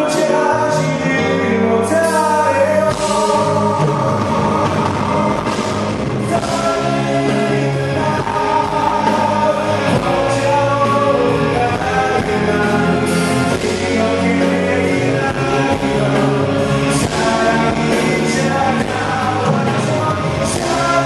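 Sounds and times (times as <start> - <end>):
live band playing: 0.0 - 21.0
man singing pop song: 0.0 - 21.0.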